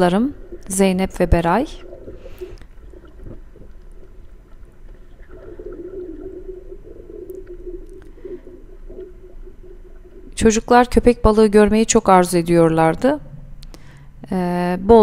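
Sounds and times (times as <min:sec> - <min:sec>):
underwater wash of water: 0:01.8 - 0:10.5.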